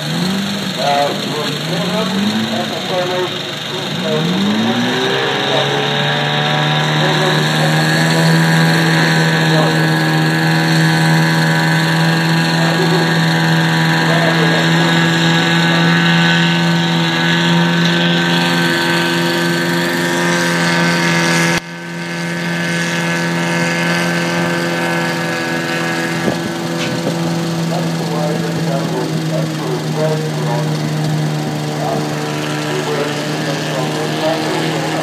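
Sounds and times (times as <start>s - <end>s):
diesel truck engine humming: 0.0s - 35.0s.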